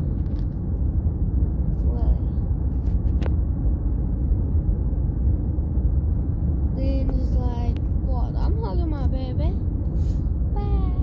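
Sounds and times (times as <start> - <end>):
vehicle road noise rumble: 0.0 - 11.0.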